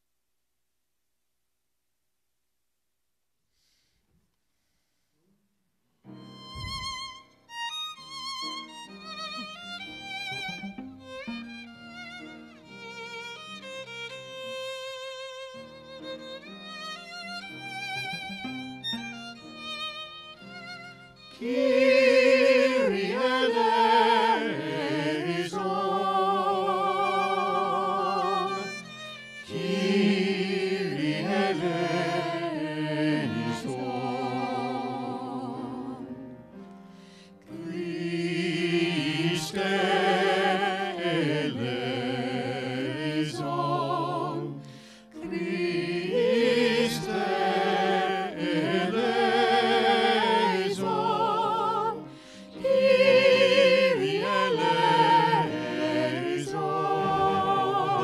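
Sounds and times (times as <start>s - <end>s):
violin: 6.1s - 58.0s
choir singing a sacred piece: 21.3s - 36.3s, 37.5s - 58.0s.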